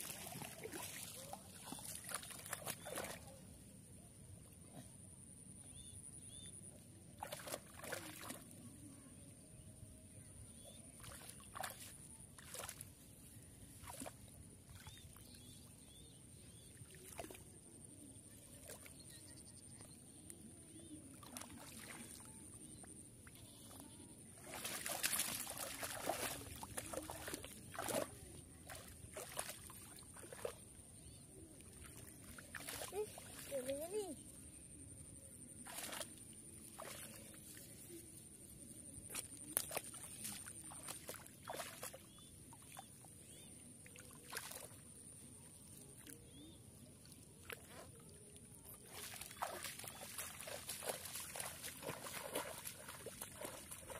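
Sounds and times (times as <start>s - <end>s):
hands splashing in shallow water: 0.0s - 3.3s, 7.1s - 8.6s, 10.9s - 13.1s, 13.8s - 15.2s, 21.1s - 22.3s, 24.4s - 30.7s, 31.8s - 33.5s, 35.6s - 37.9s, 39.0s - 42.9s, 43.9s - 46.4s, 47.0s - 53.9s.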